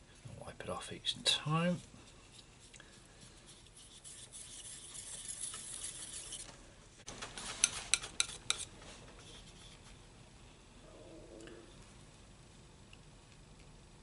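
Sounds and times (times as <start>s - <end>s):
palette knife scraping paint: 2.0s - 6.5s, 7.6s - 9.9s.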